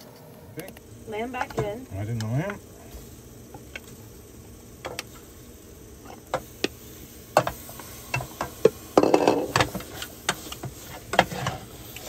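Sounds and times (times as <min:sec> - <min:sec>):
low steady background noise: 0:00.0 - 0:12.0
spatula scraping and tapping bowl: 0:07.4 - 0:12.0.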